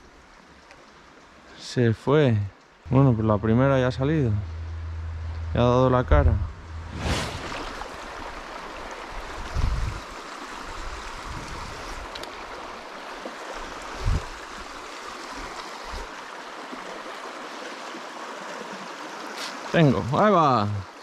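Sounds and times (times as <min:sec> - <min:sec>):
dull low thumps: 0:02.9 - 0:07.8
river rushing over stones: 0:06.9 - 0:19.7.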